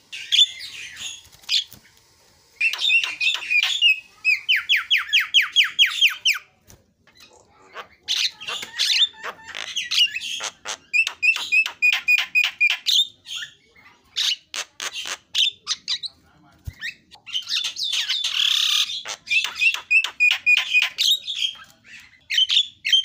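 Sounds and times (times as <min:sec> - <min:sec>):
bird singing chirps and whistles: 0:02.6 - 0:06.2.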